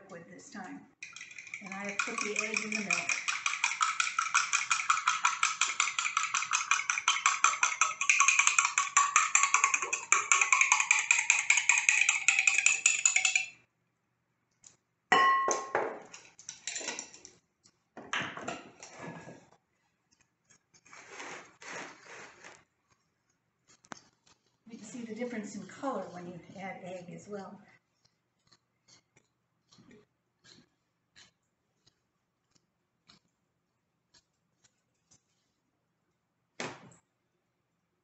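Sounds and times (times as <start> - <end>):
fork scraping in ceramic bowl: 1.0 - 8.8
fork clinking against glass jar: 1.0 - 13.6.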